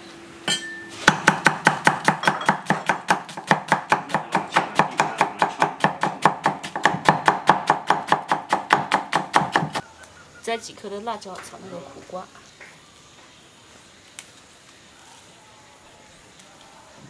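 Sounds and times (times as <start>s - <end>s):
cleaver chopping on wooden block: 1.1s - 9.8s.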